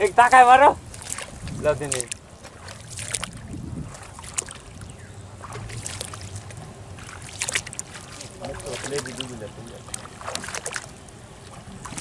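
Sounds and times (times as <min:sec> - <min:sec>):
wind rumble on microphone: 0:00.0 - 0:08.9
water sloshing from wading: 0:00.0 - 0:12.0.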